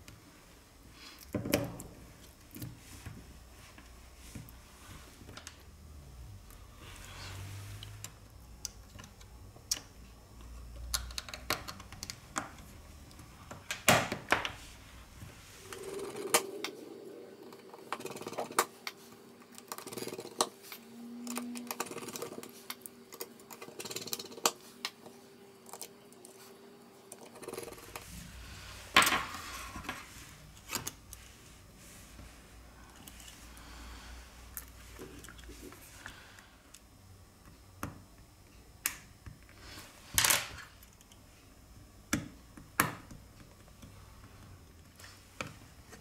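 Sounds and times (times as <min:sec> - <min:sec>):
faint steady hum: 0:00.0 - 0:46.0
clicks and taps of small parts: 0:10.8 - 0:12.7.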